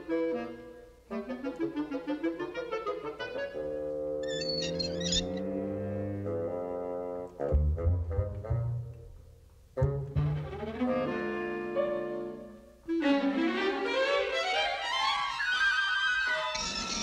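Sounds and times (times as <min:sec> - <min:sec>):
orchestral strings underscore: 0:09.7 - 0:16.6.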